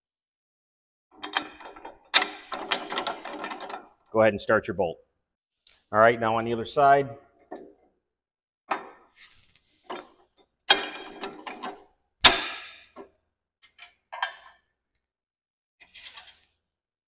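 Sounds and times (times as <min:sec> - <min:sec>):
metal knocking and scraping: 0:01.1 - 0:04.1, 0:07.4 - 0:07.9, 0:08.7 - 0:13.2.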